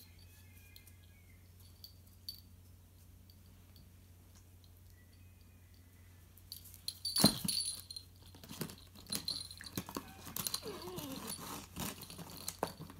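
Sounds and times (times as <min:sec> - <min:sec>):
light metallic jingling: 0:00.0 - 0:05.6, 0:06.4 - 0:12.9
puppy whining: 0:09.7 - 0:12.0.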